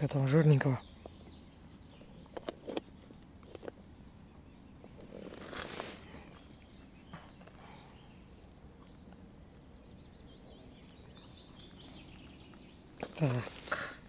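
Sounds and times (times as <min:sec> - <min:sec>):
lakeside ambience: 0:00.0 - 0:14.0
small birds chirping: 0:00.0 - 0:14.0
handling rustle: 0:04.8 - 0:06.5, 0:13.0 - 0:14.0.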